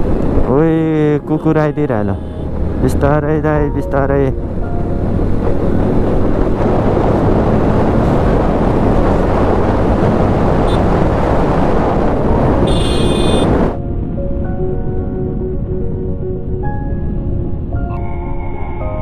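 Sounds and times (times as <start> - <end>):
wind rushing over microphone: 0.0 - 1.8, 2.4 - 15.9
background music with held notes: 0.0 - 8.8, 13.6 - 19.0.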